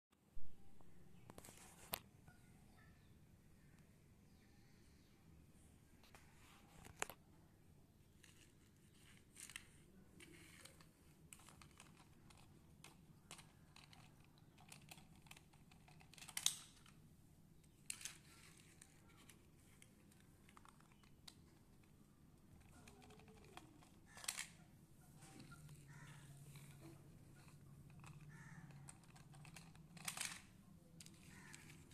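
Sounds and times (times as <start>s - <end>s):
toy cars clattering on plastic blocks: 8.2s - 17.0s, 17.7s - 24.6s, 25.2s - 31.9s.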